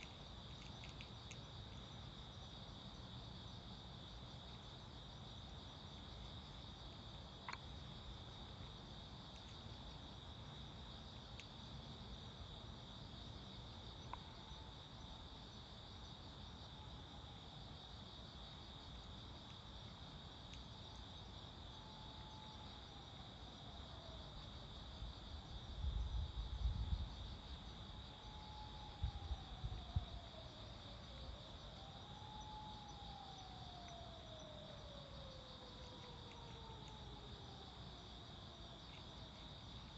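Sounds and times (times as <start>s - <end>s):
crickets trilling: 0.0s - 39.9s
distant siren wailing: 21.6s - 26.1s, 27.8s - 39.9s.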